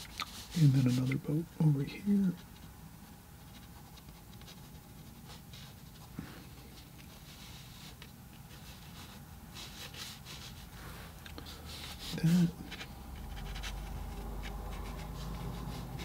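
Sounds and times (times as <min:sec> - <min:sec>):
pencil scratching on paper: 0:07.2 - 0:10.7, 0:11.6 - 0:16.0.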